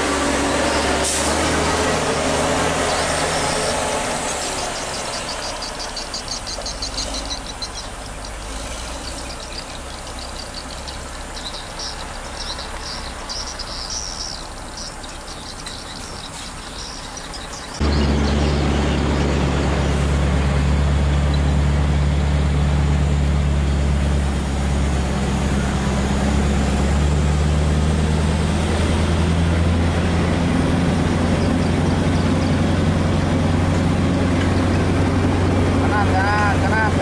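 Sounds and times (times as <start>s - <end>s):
diesel engine drone: 0.0s - 37.0s
faint insect chirping: 2.9s - 17.8s.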